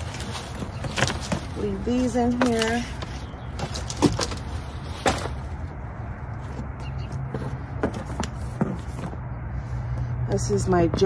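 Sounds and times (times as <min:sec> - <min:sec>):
hard objects clattering: 0:00.0 - 0:05.7.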